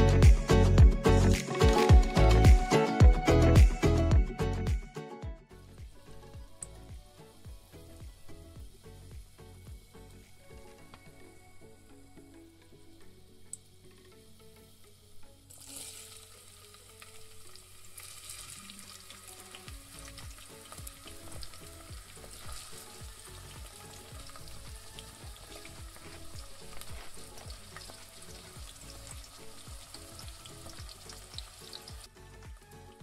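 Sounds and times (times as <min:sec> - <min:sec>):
vegetables sizzling in oil: 0:13.3 - 0:32.1.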